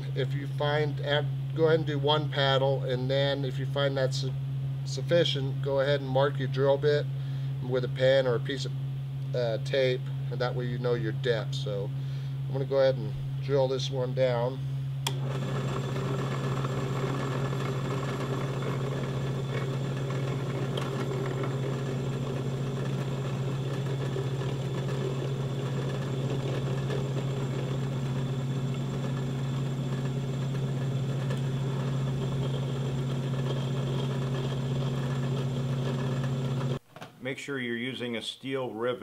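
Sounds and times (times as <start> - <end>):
drill press motor humming: 15.0 - 36.8.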